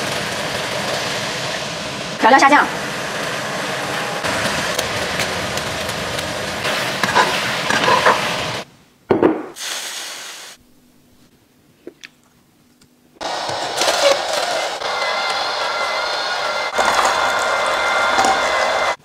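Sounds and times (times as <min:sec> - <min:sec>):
food sizzling in a pan: 0:00.0 - 0:08.7, 0:09.6 - 0:10.6, 0:16.7 - 0:19.0.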